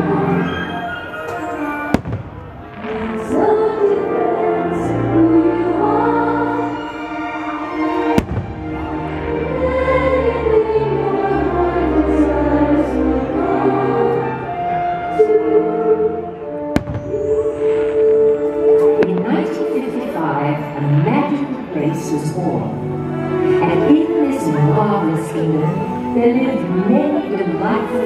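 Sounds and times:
firework bangs: 1.9s - 3.2s, 8.2s - 9.0s, 16.8s - 19.5s
music over loudspeakers: 16.4s - 28.0s.

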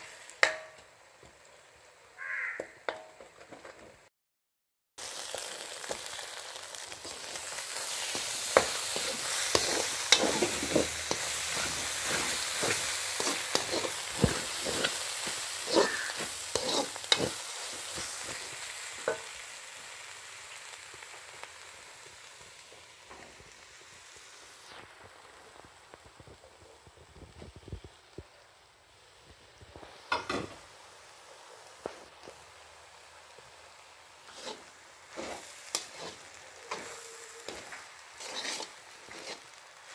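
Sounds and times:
food sizzling in a wok: 0.0s - 3.3s, 5.0s - 39.9s
spatula scraping and knocking pan: 7.0s - 19.4s, 34.3s - 39.6s.

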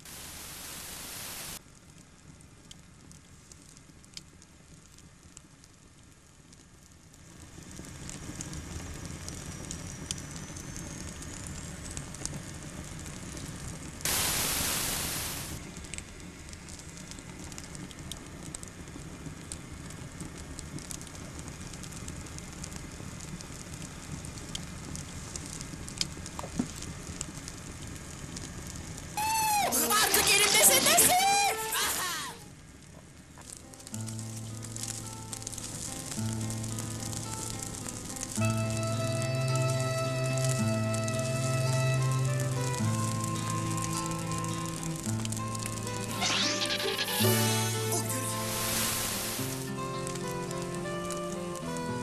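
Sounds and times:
old film soundtrack hiss: 0.0s - 52.0s
wood fire crackling: 0.0s - 52.0s
loud noise burst: 14.0s - 15.6s, 45.9s - 49.8s.

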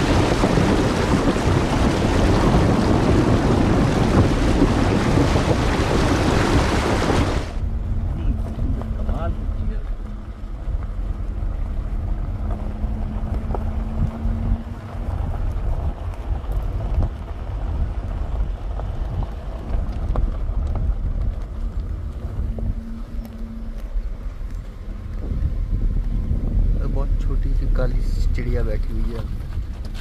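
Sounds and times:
wind rumble on microphone: 0.0s - 30.0s.

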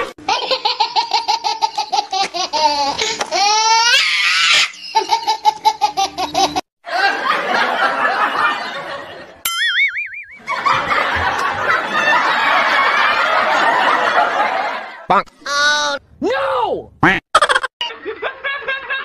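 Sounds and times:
high-pitched laughter: 0.2s - 7.3s, 17.3s - 19.0s.

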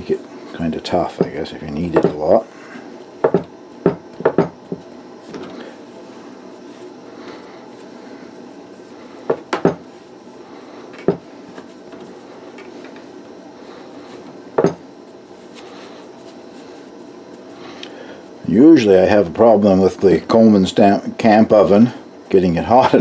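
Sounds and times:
knocks on wooden table: 3.2s - 4.8s, 9.3s - 9.8s, 11.0s - 11.2s, 14.6s - 14.8s.

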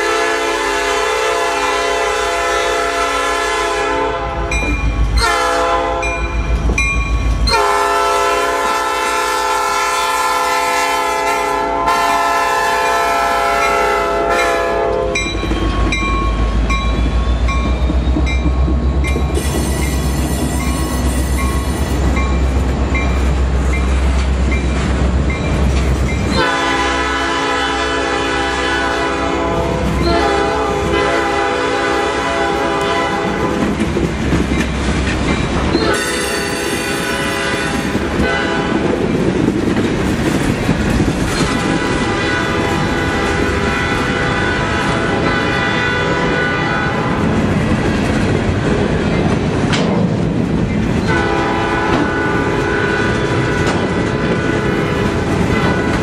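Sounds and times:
train horn blowing: 0.0s - 6.3s, 7.4s - 15.4s, 26.3s - 33.8s, 35.8s - 39.0s, 41.4s - 47.4s, 51.0s - 56.0s
freight train rumbling over rails: 0.0s - 56.0s.

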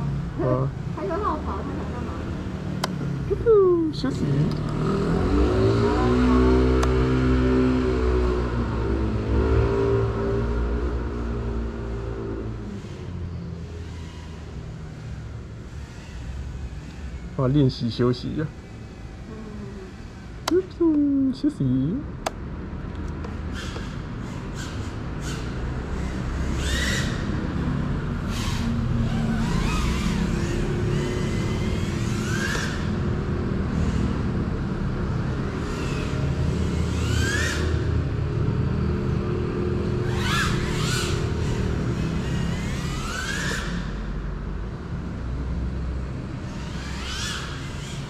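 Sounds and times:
drone propellers whining: 1.0s - 20.7s, 23.4s - 48.0s.

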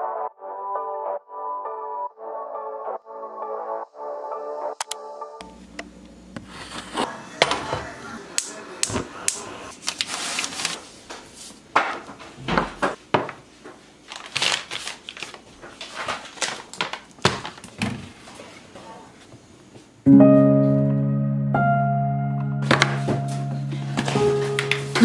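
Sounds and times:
background music chords: 0.0s - 6.3s, 20.1s - 25.0s
packaging rustle: 9.7s - 11.0s, 14.0s - 17.8s
items knocking on countertop: 11.8s - 13.4s.

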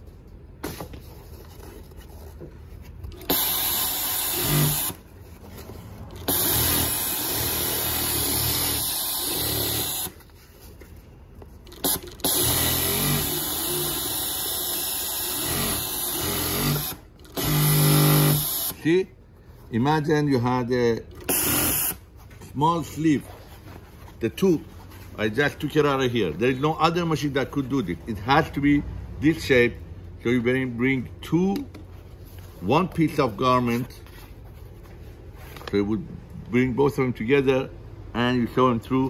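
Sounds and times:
industrial sewing machine running: 3.3s - 5.0s, 11.8s - 18.8s.

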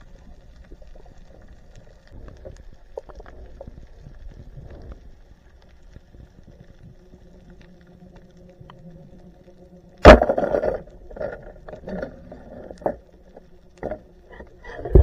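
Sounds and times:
underwater ambience: 0.0s - 15.0s
spear striking fish: 10.0s - 10.8s.

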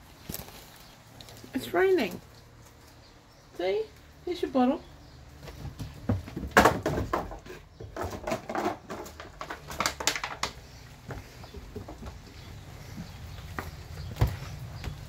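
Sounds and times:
plastic bottle hitting wooden deck: 5.7s - 10.7s.

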